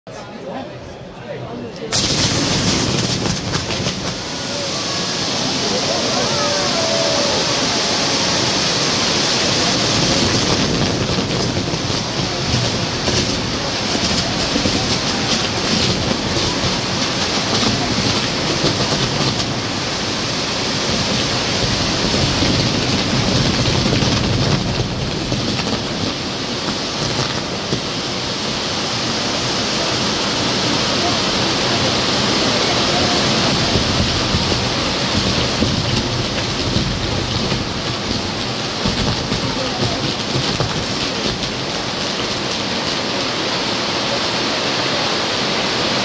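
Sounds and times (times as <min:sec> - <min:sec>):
fireworks crackling: 0:01.9 - 0:46.0
fireworks wheels hissing: 0:01.9 - 0:46.0.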